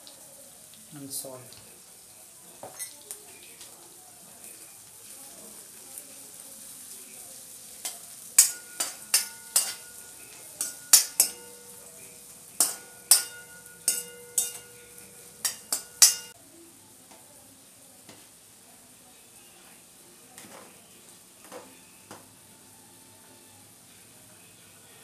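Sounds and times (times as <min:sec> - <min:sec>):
vegetables sizzling in oil: 0:00.0 - 0:25.0
ladle clanking in a metal wok: 0:07.8 - 0:16.4.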